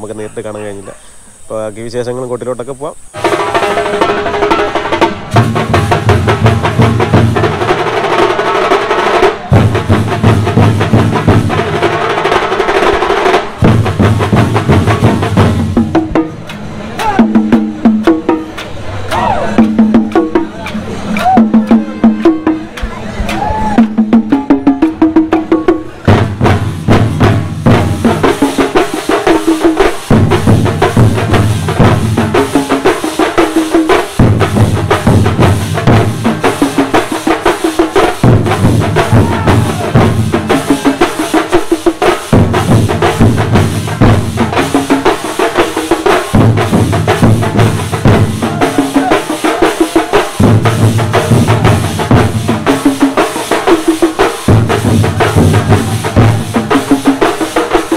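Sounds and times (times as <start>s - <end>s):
rapid dense drumming: 1.6s - 57.9s.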